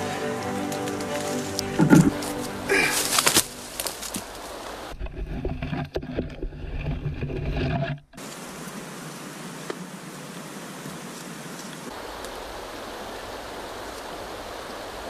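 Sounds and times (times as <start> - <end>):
fast river rushing: 0.0 - 5.0, 8.2 - 15.0.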